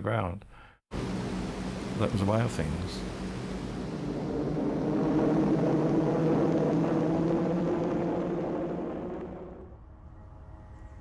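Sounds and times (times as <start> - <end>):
propeller aircraft engines droning: 0.9 - 9.7.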